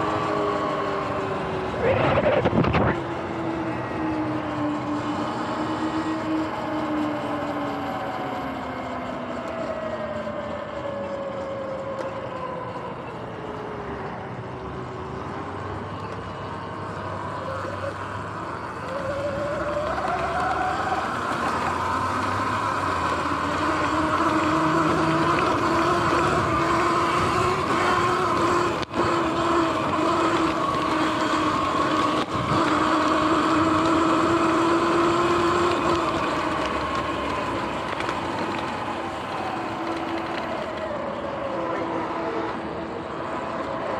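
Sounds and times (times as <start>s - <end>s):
wind noise: 1.7s - 3.2s
electric motor whining: 17.3s - 40.4s.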